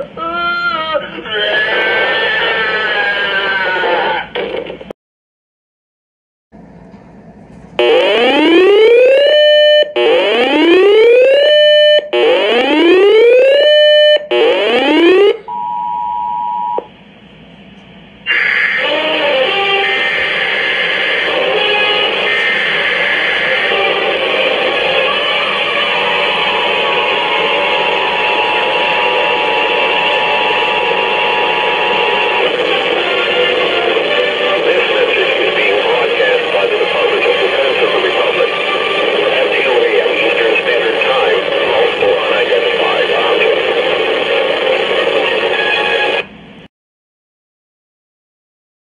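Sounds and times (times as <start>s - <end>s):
radio speaker hiss: 0.0s - 4.9s, 18.3s - 46.3s
whooping siren alert tone: 7.8s - 16.8s
two-tone beep: 15.5s - 16.9s.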